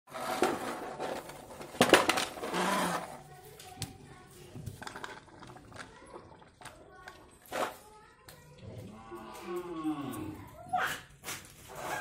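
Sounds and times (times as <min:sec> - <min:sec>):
plastic toys clattering on concrete: 0:00.1 - 0:08.5, 0:09.2 - 0:12.0.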